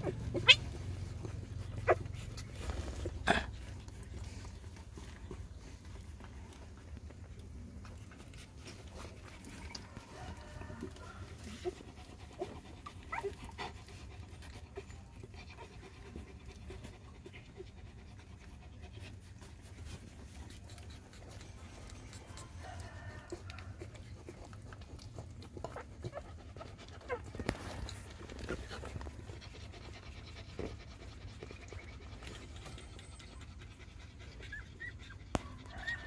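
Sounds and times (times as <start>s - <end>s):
puppies squeaking: 0.0s - 3.3s
dog panting softly: 0.0s - 36.0s.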